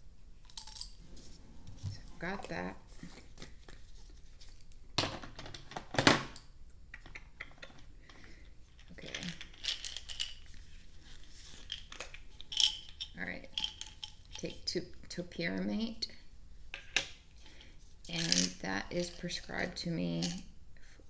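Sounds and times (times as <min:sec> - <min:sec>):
plastic pill bottles clattering: 0:08.1 - 0:10.7, 0:11.4 - 0:14.4, 0:17.5 - 0:19.3.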